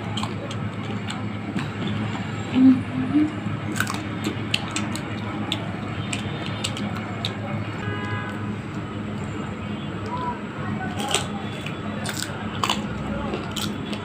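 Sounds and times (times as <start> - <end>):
sharp crackly clicks: 0.0 - 2.0, 3.6 - 9.3, 10.8 - 14.0
wet chewing: 0.0 - 14.0
crunching bites of mango: 3.6 - 9.2, 10.9 - 14.0.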